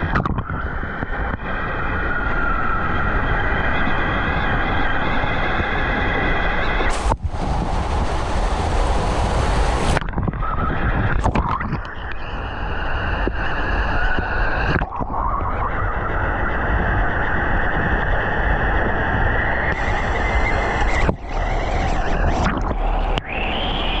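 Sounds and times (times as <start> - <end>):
water rushing down slide: 6.9 - 11.8, 19.7 - 24.0.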